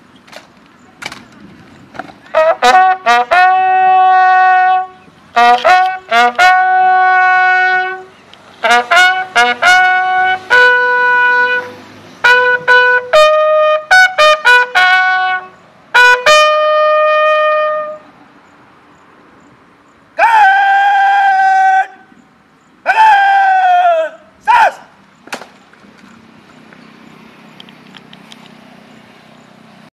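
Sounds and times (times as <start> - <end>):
bugle sounding a funeral call: 2.2 - 18.1, 20.2 - 22.2, 22.8 - 25.0.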